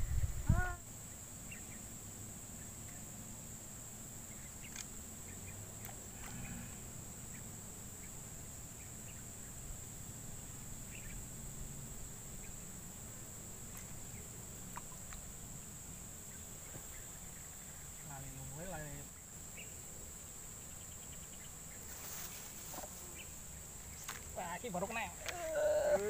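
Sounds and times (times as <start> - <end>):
high-pitched insect drone: 0.0 - 26.0
faint short clicks: 4.6 - 4.9.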